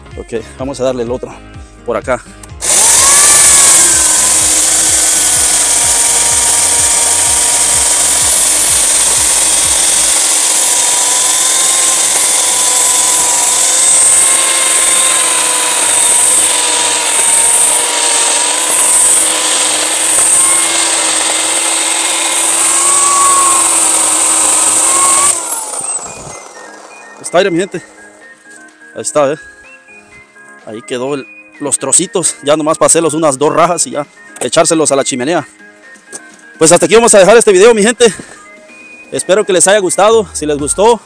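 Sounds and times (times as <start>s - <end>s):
electric chainsaw cutting log: 2.6s - 28.1s.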